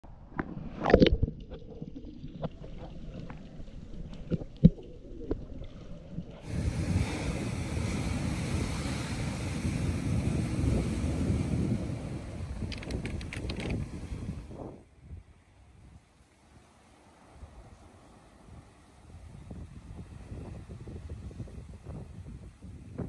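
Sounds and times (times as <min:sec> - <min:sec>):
wind: 0:00.0 - 0:23.0
surf rushing: 0:06.4 - 0:14.8.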